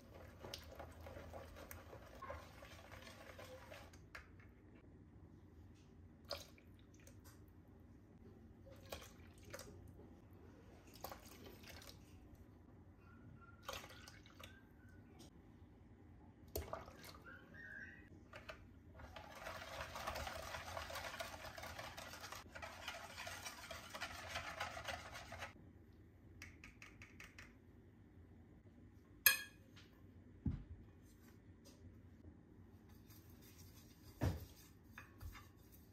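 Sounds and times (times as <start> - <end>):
whisk knocking against bowl: 19.2 - 25.6.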